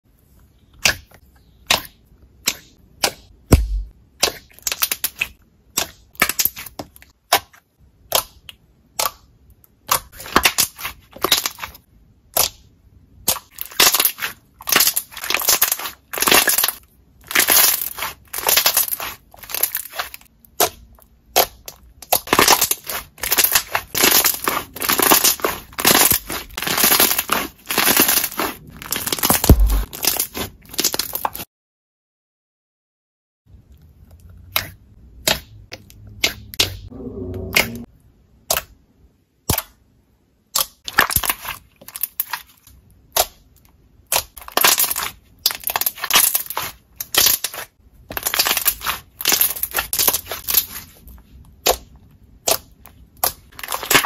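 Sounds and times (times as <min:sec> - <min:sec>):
slime squelching: 0:00.2 - 0:31.4, 0:33.5 - 0:38.8, 0:40.5 - 0:54.0
slime popping wetly: 0:17.4 - 0:31.4.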